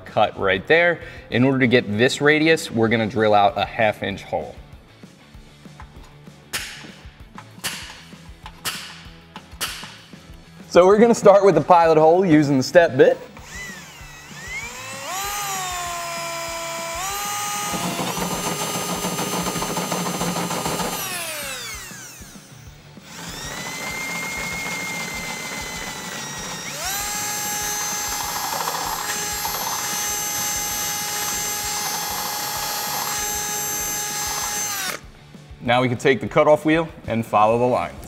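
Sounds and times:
cordless drill motor whine: 0:13.4 - 0:35.0.

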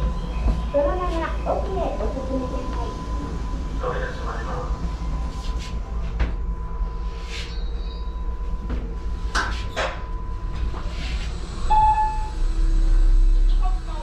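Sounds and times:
elevator rumble: 0:00.0 - 0:14.0
faint hum: 0:00.0 - 0:14.0
short tone: 0:11.7 - 0:12.4.

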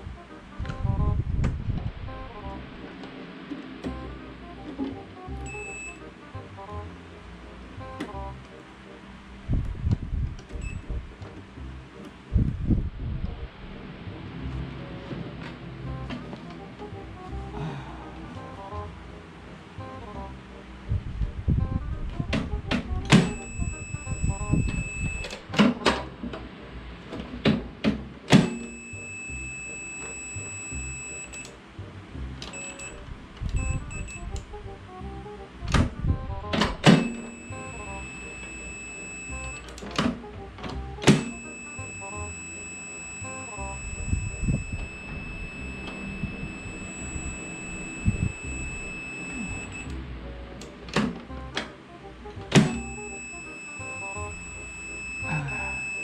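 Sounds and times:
multimeter beeping high tone: 0:05.4 - 0:06.1, 0:23.1 - 0:25.4, 0:28.4 - 0:31.5, 0:32.5 - 0:34.4, 0:36.9 - 0:39.7, 0:41.1 - 0:49.9, 0:52.6 - 0:56.0.

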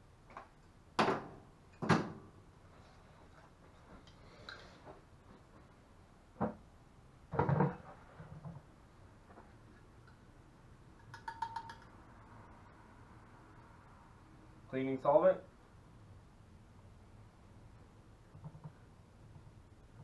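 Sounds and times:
plastic pipe fittings knocking: 0:11.1 - 0:11.8, 0:18.3 - 0:18.8.

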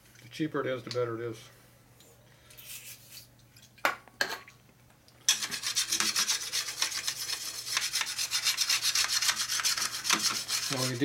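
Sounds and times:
sharpening stone scraping metal: 0:05.3 - 0:11.0.

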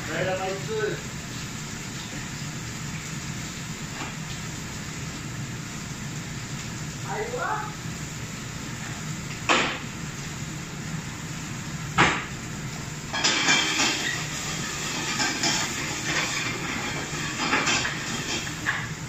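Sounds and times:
food sizzling in a pan: 0:00.0 - 0:19.0.

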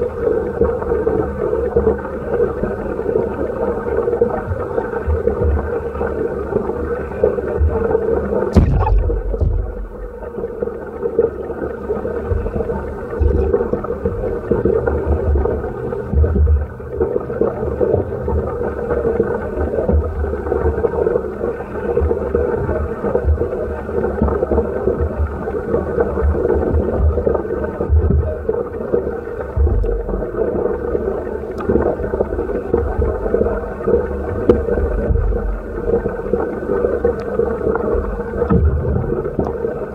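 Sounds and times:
muffled underwater rumble: 0:00.0 - 0:39.9
low underwater thumps: 0:08.5 - 0:10.8.

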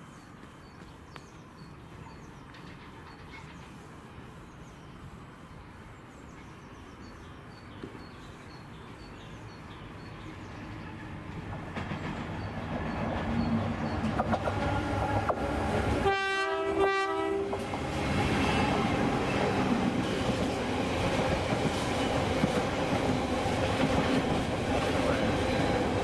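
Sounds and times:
diesel train rumbling: 0:08.9 - 0:26.0.

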